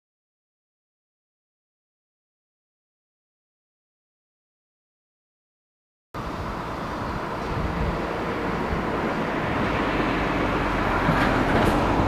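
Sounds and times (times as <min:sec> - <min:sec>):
steam locomotive rumbling: 0:06.2 - 0:12.0.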